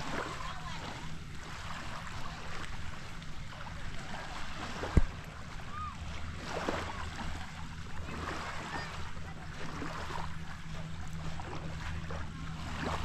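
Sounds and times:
low steady hum: 0.0s - 13.0s
waves washing: 0.0s - 13.0s.

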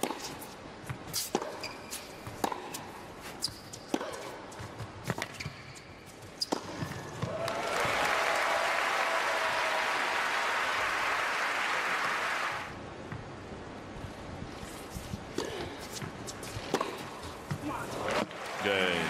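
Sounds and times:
tennis ball struck by rackets: 1.2s - 2.9s, 3.9s - 5.5s, 15.3s - 17.6s
crowd applause: 7.3s - 12.8s.

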